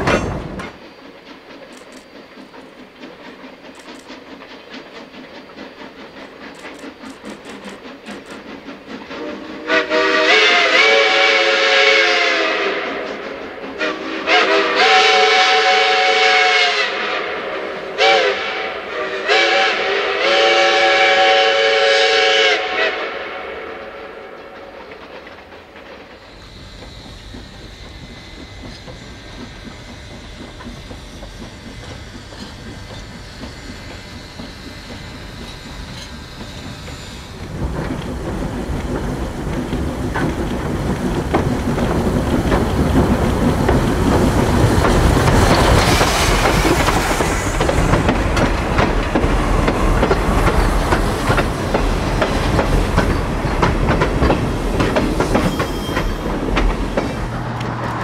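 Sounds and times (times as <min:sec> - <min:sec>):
wheels clicking over rail joints: 0:00.0 - 0:09.1, 0:24.3 - 0:58.0
railroad cars rolling past: 0:00.0 - 0:58.0.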